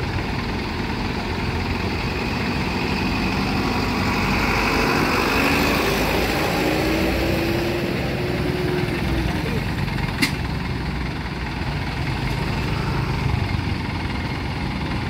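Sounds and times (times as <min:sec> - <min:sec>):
diesel truck driving past: 0:00.0 - 0:15.0.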